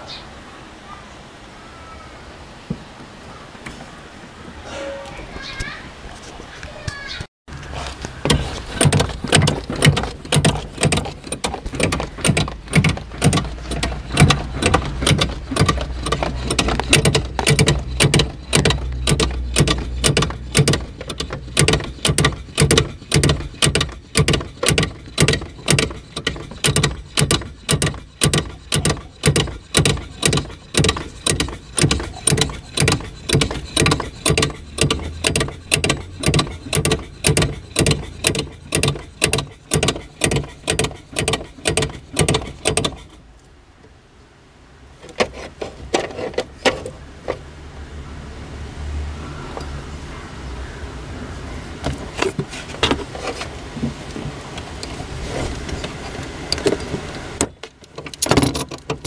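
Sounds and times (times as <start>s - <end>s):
clutch pedal mechanical stroke: 7.6s - 43.2s.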